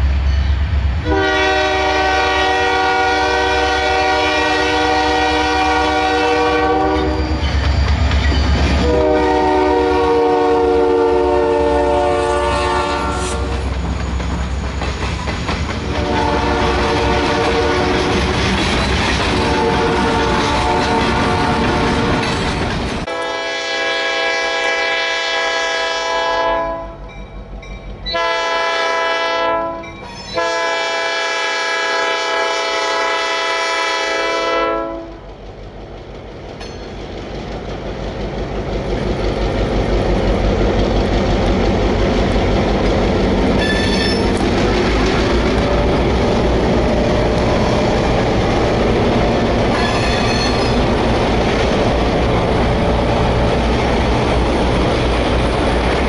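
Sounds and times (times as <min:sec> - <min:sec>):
locomotive engines rumbling: 0:00.0 - 0:56.0
locomotive air horn blasts: 0:01.0 - 0:07.2, 0:08.8 - 0:13.6, 0:15.9 - 0:18.0, 0:19.4 - 0:22.2, 0:23.1 - 0:27.1, 0:28.1 - 0:35.2
wheels clicking over rail joints: 0:13.5 - 0:23.1, 0:35.0 - 0:56.0.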